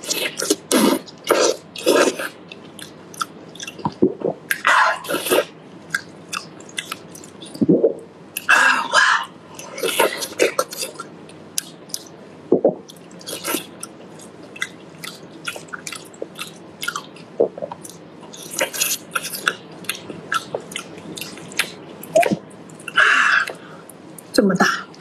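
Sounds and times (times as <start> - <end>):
wet chewing mouth sounds: 0.0 - 7.8, 12.8 - 23.6.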